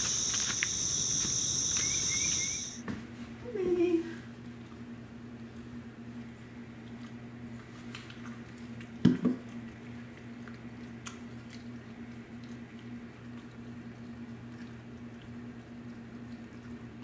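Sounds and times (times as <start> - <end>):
steady low hum: 0.0 - 2.8.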